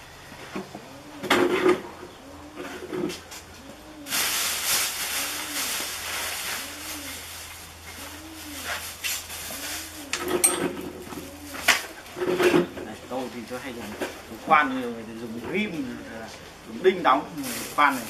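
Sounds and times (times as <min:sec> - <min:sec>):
plastic bag rustling: 0:04.1 - 0:12.3, 0:17.3 - 0:18.0.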